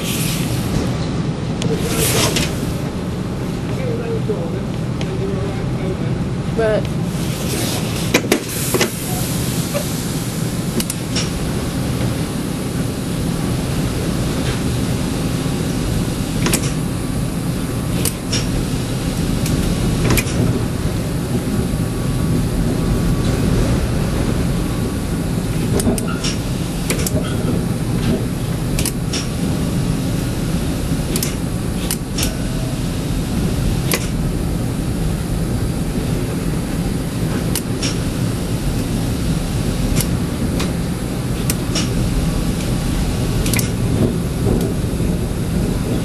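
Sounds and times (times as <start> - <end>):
tram rumbling: 0.0 - 46.0
sharp clicks and knocks: 16.4 - 16.8, 19.4 - 20.5, 25.6 - 29.4, 31.1 - 32.4, 33.9 - 34.2, 37.3 - 38.1, 41.4 - 42.0, 43.4 - 44.8.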